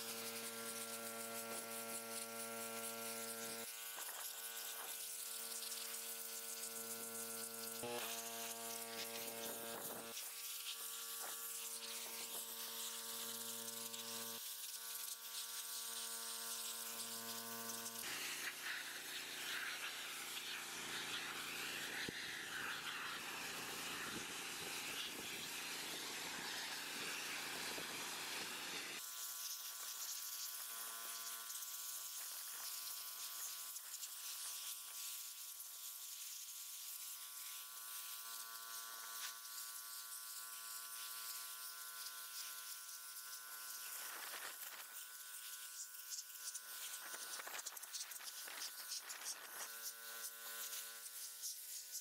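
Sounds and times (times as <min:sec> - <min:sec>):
buzzing whine: 0:00.0 - 0:29.0
pressure washer spraying concrete: 0:00.0 - 0:52.0.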